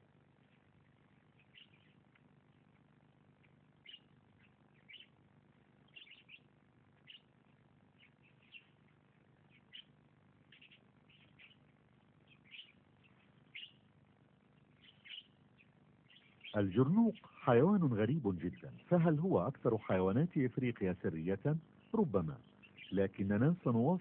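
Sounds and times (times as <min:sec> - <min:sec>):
low steady background hum: 0:00.0 - 0:24.0
faint short bird chirps: 0:14.8 - 0:16.6.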